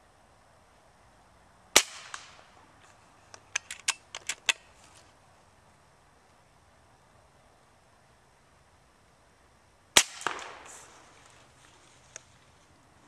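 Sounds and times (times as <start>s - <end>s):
air rifle shot crack: 1.8s - 2.5s, 10.0s - 11.0s.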